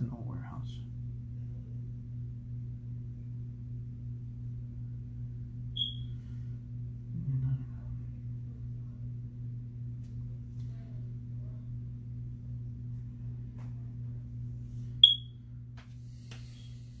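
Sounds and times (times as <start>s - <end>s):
low electrical hum: 0.0s - 17.0s
high-pitched electronic chirp: 5.8s - 6.2s, 15.0s - 15.3s.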